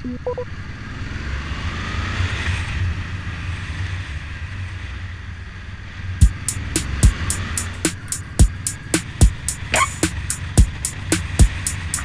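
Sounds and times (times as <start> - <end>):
motorcycle engine running: 6.2 - 12.0.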